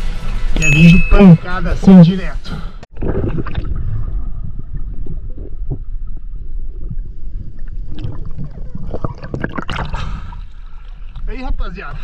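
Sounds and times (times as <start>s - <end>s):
sea water sloshing and gurgling: 2.9s - 11.3s.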